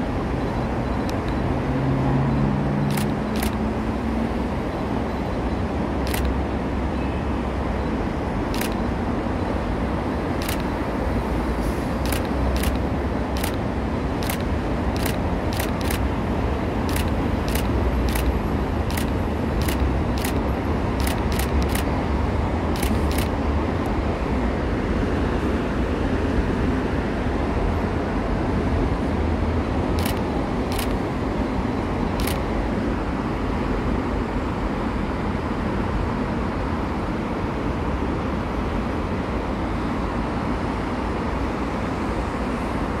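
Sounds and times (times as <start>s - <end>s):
road traffic noise: 0.0s - 43.0s
short sharp clicks: 21.0s - 21.9s, 30.0s - 31.0s.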